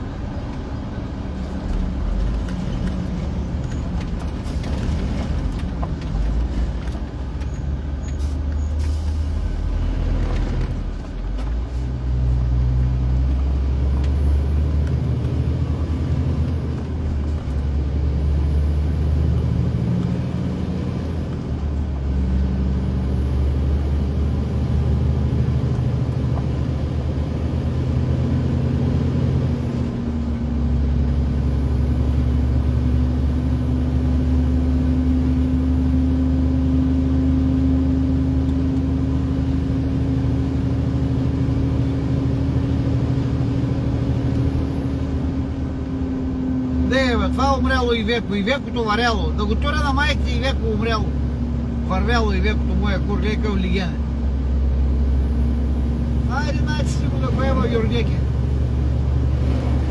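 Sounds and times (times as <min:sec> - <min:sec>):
truck engine drone: 0:00.0 - 0:59.9.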